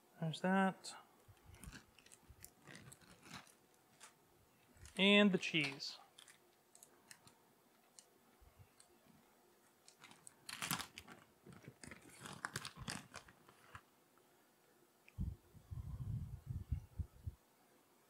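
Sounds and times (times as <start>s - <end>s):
plastic bag crinkling: 1.4s - 8.1s, 9.8s - 13.9s.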